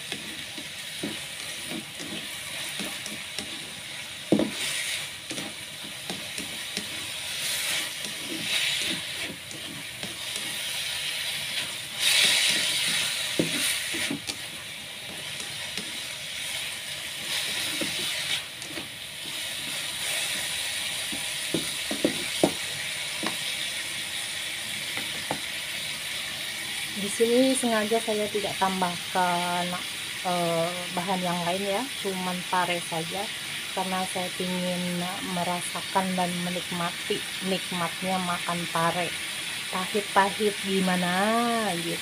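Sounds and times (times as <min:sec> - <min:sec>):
spatula scraping and knocking pan: 0:00.0 - 0:23.5
vegetables sizzling in a pan: 0:00.0 - 0:42.0.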